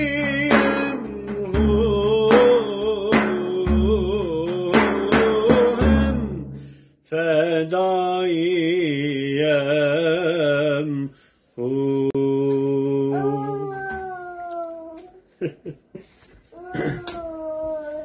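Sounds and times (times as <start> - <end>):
frame drum with jingles: 0.0 - 6.4
man singing with vibrato: 0.0 - 14.1.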